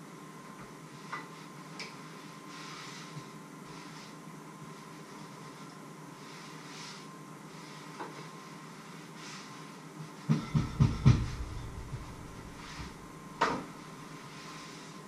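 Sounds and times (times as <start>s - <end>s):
faint steady hum: 0.0s - 15.0s
knocks on wooden counter: 10.3s - 12.1s.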